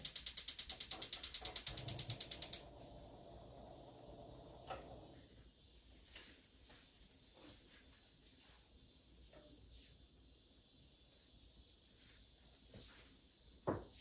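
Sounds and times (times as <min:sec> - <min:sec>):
rapid mechanical clicking: 0:00.0 - 0:05.1.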